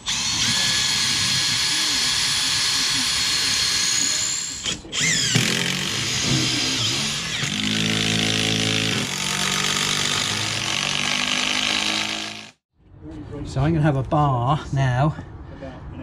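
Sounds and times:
cordless drill driving screws: 0:00.0 - 0:12.6.

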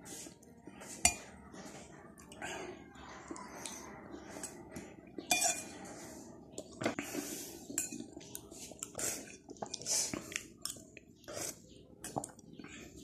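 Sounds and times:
spoon scraping a dish: 0:00.0 - 0:02.0, 0:03.4 - 0:11.8.

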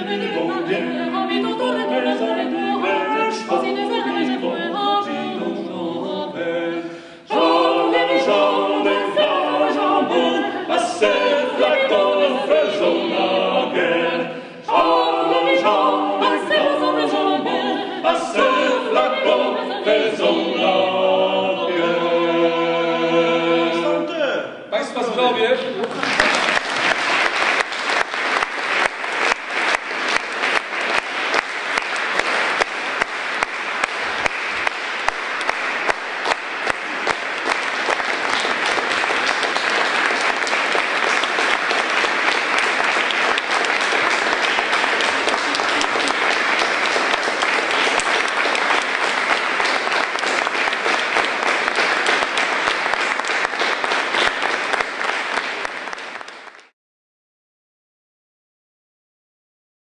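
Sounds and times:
audience applauding: 0:25.8 - 0:56.7
loud regular clap: 0:25.8 - 0:56.7.

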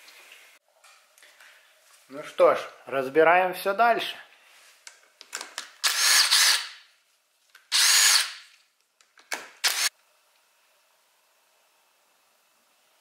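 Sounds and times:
impact driver bursts: 0:05.8 - 0:06.8, 0:07.7 - 0:08.4, 0:09.4 - 0:09.9.

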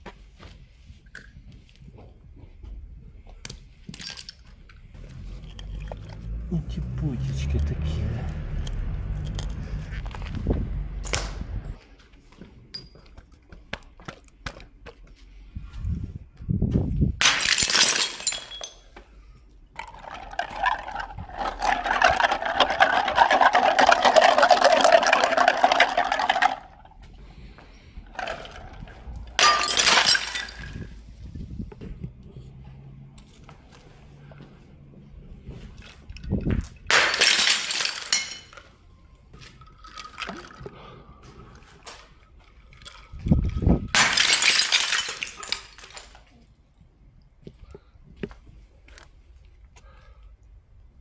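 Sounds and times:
glass jars shattering: 0:17.2 - 0:18.9, 0:19.8 - 0:26.8, 0:29.3 - 0:31.0, 0:36.8 - 0:38.7, 0:42.6 - 0:46.3.

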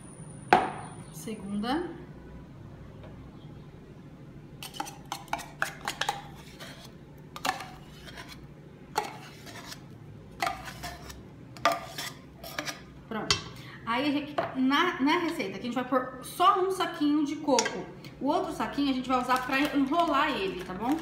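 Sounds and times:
metal spoon scraping tin can: 0:04.6 - 0:08.4, 0:09.0 - 0:12.9.

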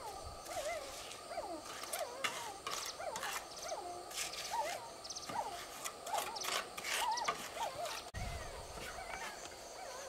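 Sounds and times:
trowel scraping wet mortar: 0:00.5 - 0:04.8, 0:05.5 - 0:08.2.

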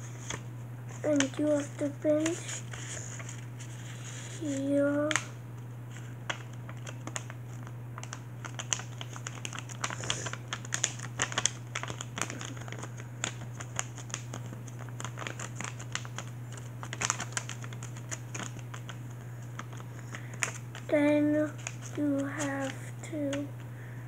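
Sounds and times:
paper being folded and creased: 0:00.0 - 0:05.3, 0:05.9 - 0:23.5.

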